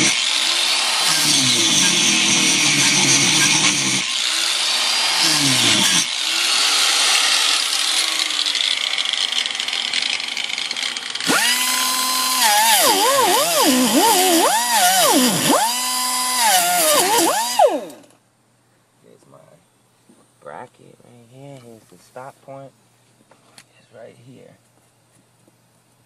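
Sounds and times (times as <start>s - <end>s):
grinder cutting sheet metal: 0.0s - 18.1s.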